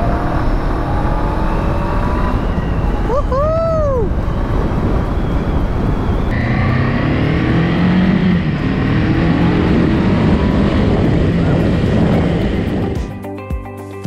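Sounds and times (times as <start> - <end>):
wind rush on microphone: 0.0 - 13.2
motorcycle engine running: 4.1 - 13.2.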